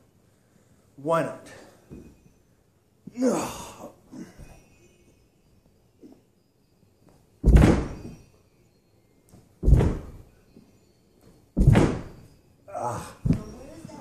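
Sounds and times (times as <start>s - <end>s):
heavy thuds on floor: 7.4s - 8.2s, 9.6s - 10.3s, 11.6s - 12.3s, 13.2s - 14.0s.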